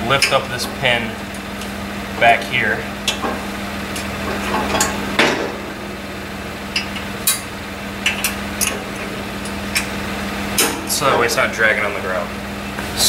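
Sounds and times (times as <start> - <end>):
truck engine idling: 0.0 - 13.0
metal pin clicks and clanks: 3.0 - 5.6, 6.7 - 9.9, 10.6 - 11.3.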